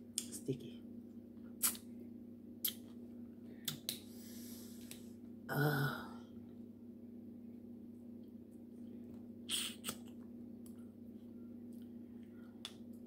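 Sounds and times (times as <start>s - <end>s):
steady low hum: 0.0s - 13.0s
lip smacks: 1.6s - 1.9s, 2.6s - 2.9s, 3.6s - 4.0s, 9.5s - 10.8s.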